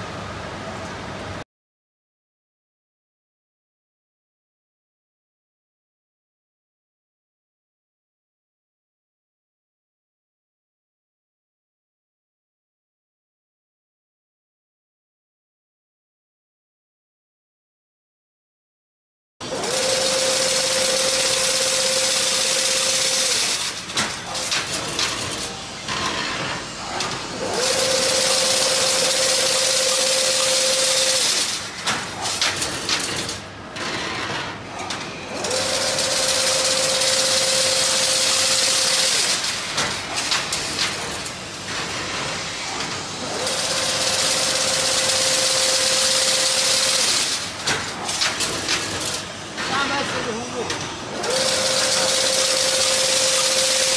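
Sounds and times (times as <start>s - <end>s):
machine motor whine: 19.4s - 53.9s
machine clicking and clattering: 20.7s - 53.9s.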